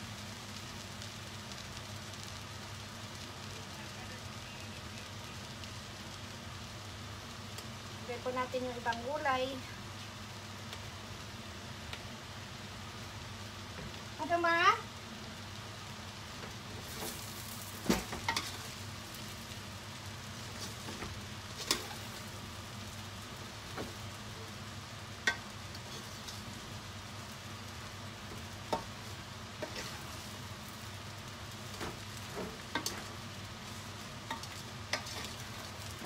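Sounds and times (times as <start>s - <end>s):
low steady sizzle: 0.0s - 36.0s
noodles stirred in a metal pot: 16.6s - 27.5s, 28.1s - 36.0s.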